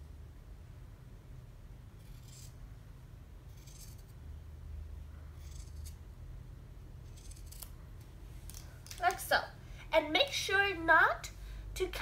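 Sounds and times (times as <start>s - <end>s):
scissors cutting fabric: 3.5s - 4.2s, 5.3s - 6.0s, 7.1s - 7.8s.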